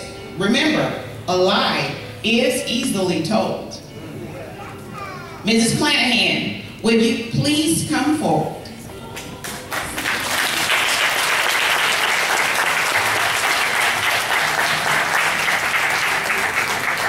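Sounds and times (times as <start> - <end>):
congregation applauding: 9.4 - 17.0.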